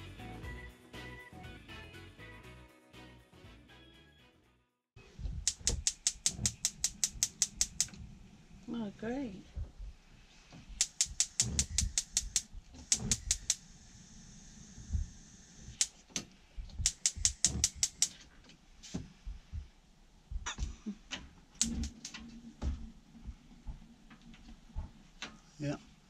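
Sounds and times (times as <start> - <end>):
gas ignition clicking: 5.4 - 8.2, 10.7 - 13.8, 14.8 - 18.3, 21.6 - 22.2.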